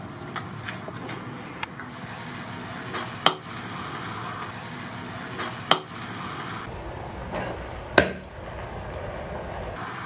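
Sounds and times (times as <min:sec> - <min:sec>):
knife striking wood: 0:05.7 - 0:06.0
metallic blade ring: 0:05.7 - 0:06.2, 0:08.1 - 0:09.0.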